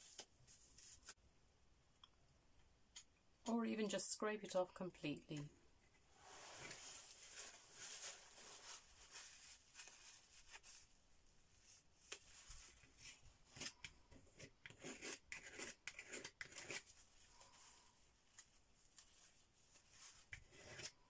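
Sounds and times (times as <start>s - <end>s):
paper towel rustling: 6.2s - 13.2s
palette knife scraping paint: 13.1s - 17.4s, 19.9s - 21.0s.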